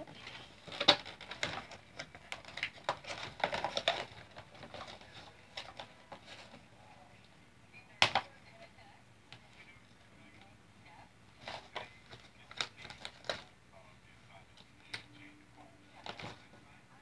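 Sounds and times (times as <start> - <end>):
plastic and cardboard crackling: 0.0 - 6.7, 11.3 - 13.5, 15.9 - 16.6.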